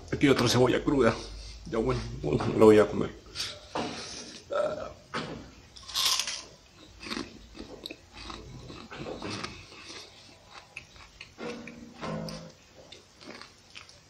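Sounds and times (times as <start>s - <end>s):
chewing with wet crunches: 5.9s - 14.0s.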